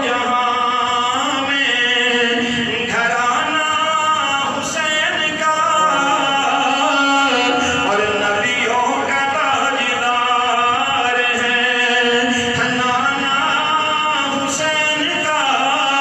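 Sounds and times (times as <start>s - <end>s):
man chanting into a microphone: 0.0s - 16.0s.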